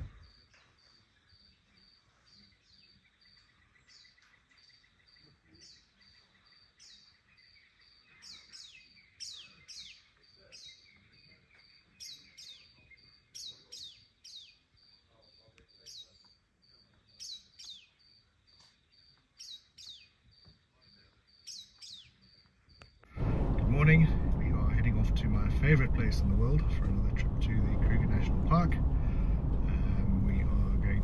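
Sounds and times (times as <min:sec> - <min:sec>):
birds whistling: 0:02.2 - 0:14.6, 0:17.2 - 0:18.0.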